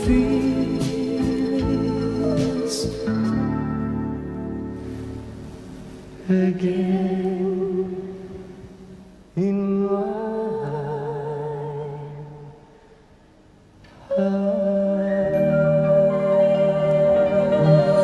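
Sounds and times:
slow soft music with held chords: 0.0s - 12.6s, 13.9s - 18.0s.

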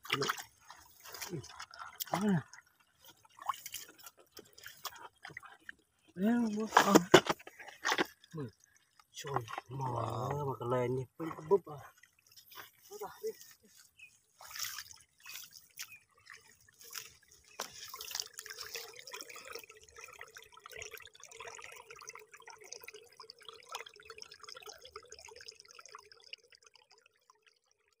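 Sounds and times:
feet splashing in water: 0.0s - 5.8s, 11.3s - 19.6s
water trickling over rocks: 0.0s - 28.0s.

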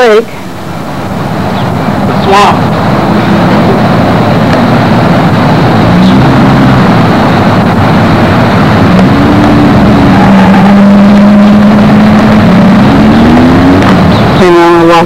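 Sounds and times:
loud rushing noise: 0.4s - 15.0s
motor humming: 0.6s - 14.5s.

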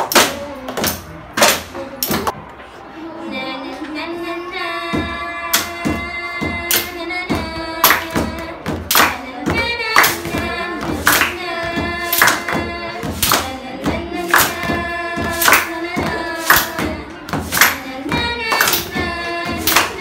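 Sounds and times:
teenagers singing together: 3.2s - 20.0s
hand claps: 5.5s - 5.9s, 6.7s - 20.0s.

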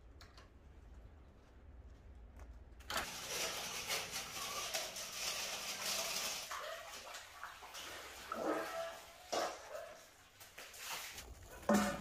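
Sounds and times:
water running from a hose: 3.0s - 9.7s.

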